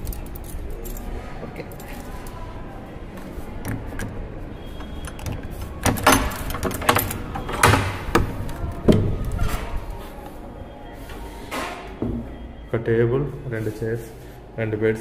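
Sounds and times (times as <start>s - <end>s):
key turning in padlock: 3.6s - 9.3s
door swinging open: 3.7s - 9.8s
metal bolt drawn back: 4.8s - 8.2s.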